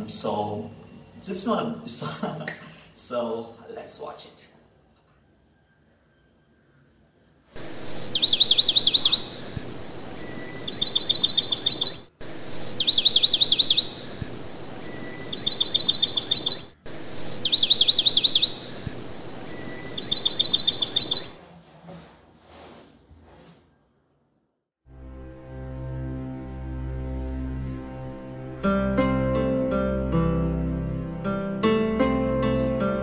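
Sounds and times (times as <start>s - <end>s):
steady hiss: 7.5s - 21.4s
recorded bird song: 7.6s - 21.4s.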